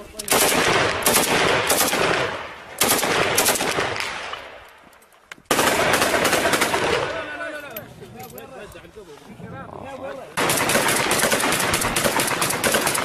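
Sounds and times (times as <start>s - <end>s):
automatic gunfire: 0.3s - 4.3s, 5.5s - 7.3s, 10.4s - 13.0s.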